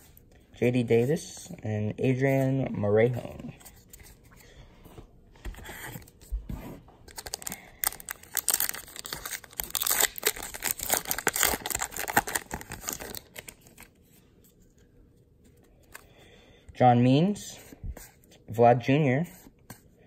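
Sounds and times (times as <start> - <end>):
wrapper crinkling and tearing: 7.0 - 13.9.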